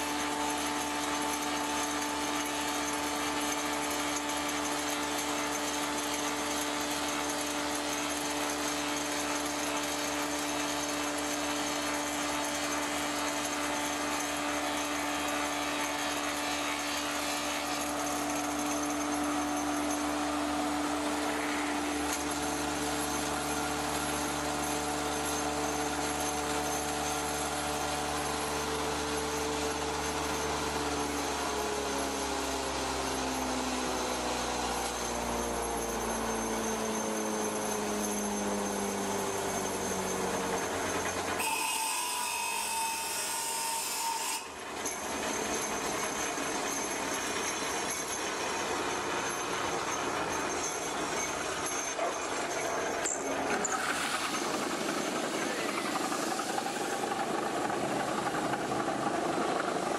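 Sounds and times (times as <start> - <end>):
lathe machinery humming: 0.0 - 59.9
rasping wood cutting: 36.2 - 59.1.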